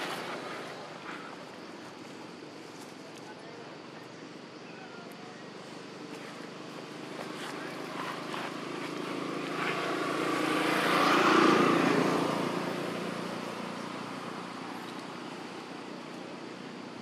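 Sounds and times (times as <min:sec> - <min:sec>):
vehicle engine passing: 0:06.4 - 0:14.8.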